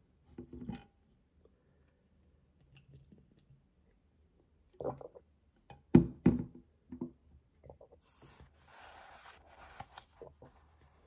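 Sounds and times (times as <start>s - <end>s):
paper rustling: 8.1s - 11.0s.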